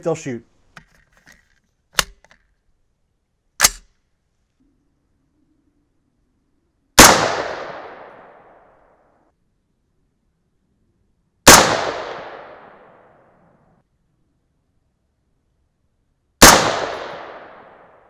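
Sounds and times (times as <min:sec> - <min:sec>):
rifle shots with echo: 0:07.0 - 0:08.7, 0:11.4 - 0:13.2, 0:16.4 - 0:18.0.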